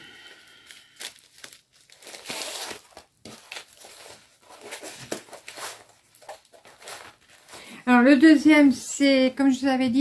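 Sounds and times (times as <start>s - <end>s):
packaging crackles: 0.5s - 7.8s
packaging crinkling and rustling: 0.6s - 7.8s.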